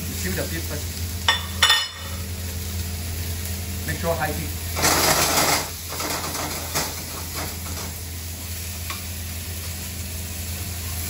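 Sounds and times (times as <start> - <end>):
beef sizzling in a hot pan: 0.0 - 11.0
utensils clinking on pan: 1.3 - 2.2, 4.8 - 8.0.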